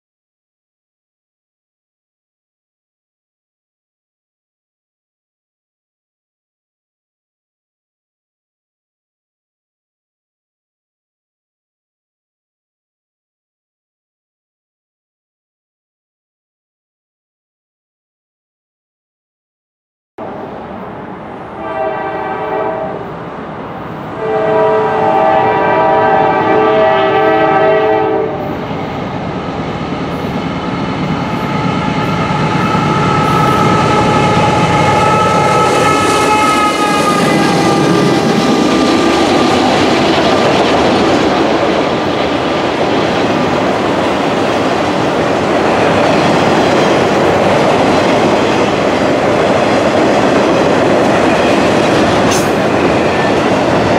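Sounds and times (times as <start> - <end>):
diesel locomotive engines: 20.2 - 53.9
rail cars clickety-clack: 20.2 - 53.9
locomotive air horn: 21.6 - 23.1, 24.2 - 28.5, 31.8 - 39.5.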